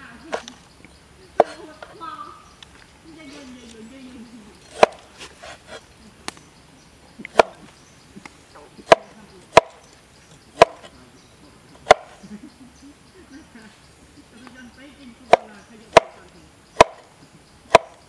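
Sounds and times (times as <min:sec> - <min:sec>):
cleaver chopping on wooden board: 0:01.4 - 0:01.6, 0:04.7 - 0:06.4, 0:07.3 - 0:07.7, 0:08.8 - 0:09.8, 0:10.6 - 0:10.9, 0:11.8 - 0:12.2, 0:15.3 - 0:18.0.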